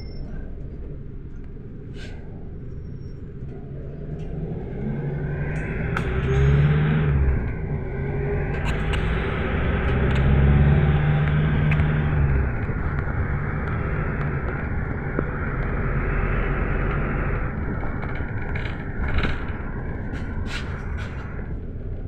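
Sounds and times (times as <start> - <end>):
minibus engine hum: 0.0 - 22.0
road rumble: 0.0 - 22.0
knocks and rattles: 7.3 - 22.0.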